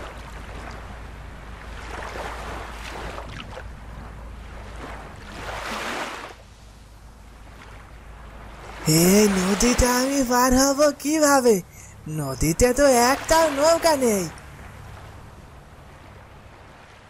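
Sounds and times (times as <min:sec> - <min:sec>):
rush of water: 0:00.0 - 0:06.8, 0:07.4 - 0:17.0
river water flowing: 0:00.0 - 0:17.0.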